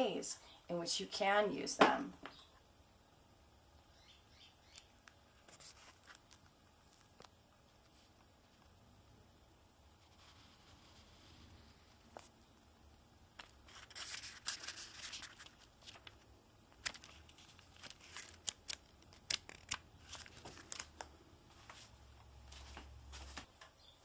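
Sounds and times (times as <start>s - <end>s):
paper pages rustling: 5.4s - 8.7s, 13.4s - 23.5s
pages flicking: 13.4s - 21.1s.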